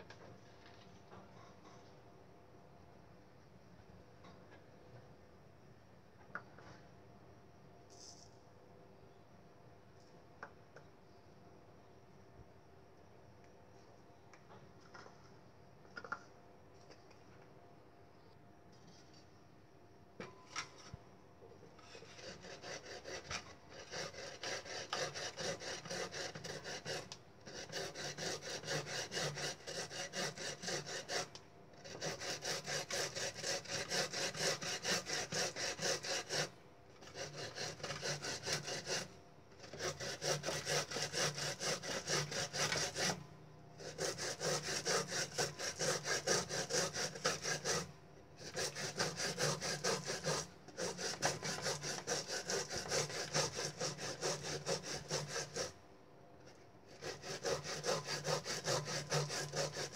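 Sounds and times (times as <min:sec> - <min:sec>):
root grated on grater: 0:21.9 - 0:43.2, 0:43.8 - 0:55.7, 0:57.0 - 0:59.9.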